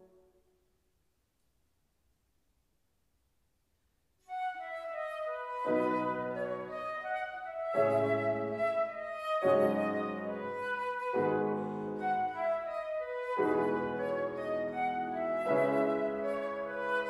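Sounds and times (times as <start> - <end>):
flute melody: 4.2 - 17.0
piano chords: 4.3 - 17.0.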